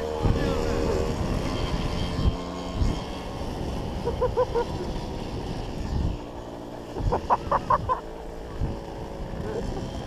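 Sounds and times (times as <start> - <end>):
two-stroke moped engine running: 0.0 - 10.0.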